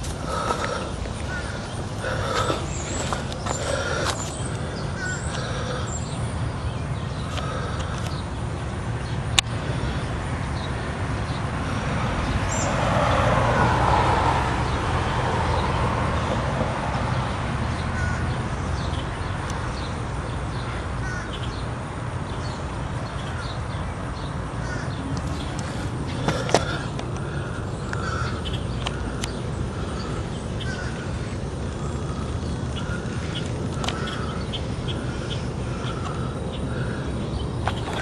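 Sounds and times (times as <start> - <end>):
bird calls: 0.0 - 12.8, 22.3 - 38.0.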